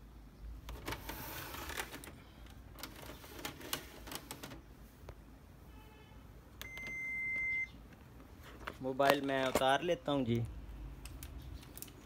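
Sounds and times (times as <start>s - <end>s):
printer clicks and rattles: 2.8s - 4.6s.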